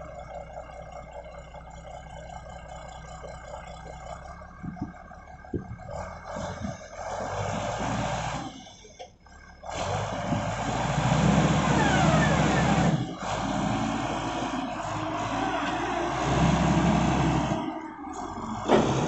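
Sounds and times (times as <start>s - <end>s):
diesel engine revving: 0.0s - 19.0s
rising whine: 14.1s - 19.0s.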